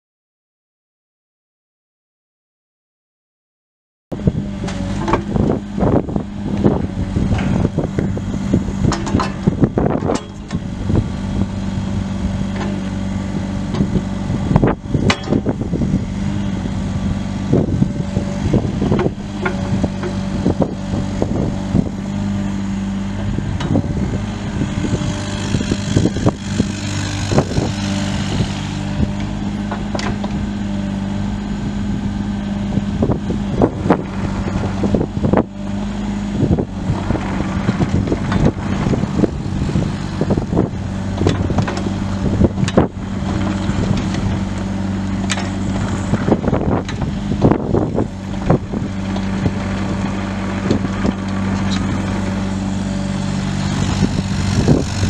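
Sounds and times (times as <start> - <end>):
diesel engine running: 4.1 - 55.0
metallic clanks and knocks: 8.9 - 10.6, 15.1 - 15.5.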